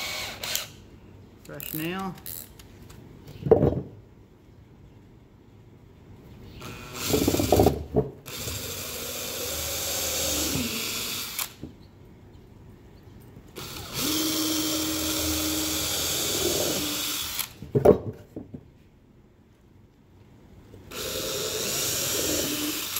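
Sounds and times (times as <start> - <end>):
cordless drill drilling into wood: 0.0 - 0.7, 6.6 - 7.7, 8.3 - 11.6, 13.6 - 17.6, 20.9 - 22.9.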